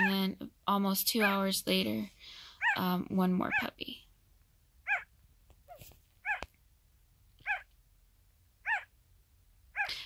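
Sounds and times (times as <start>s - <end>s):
puppy crying squeaks: 2.6s - 2.8s, 4.9s - 5.1s, 5.7s - 6.5s, 7.4s - 7.7s, 8.6s - 8.9s, 9.8s - 10.0s.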